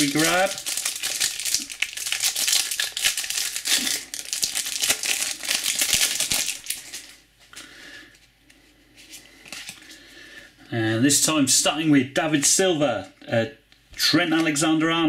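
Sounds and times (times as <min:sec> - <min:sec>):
plastic wrapper crinkling: 0:00.0 - 0:07.2.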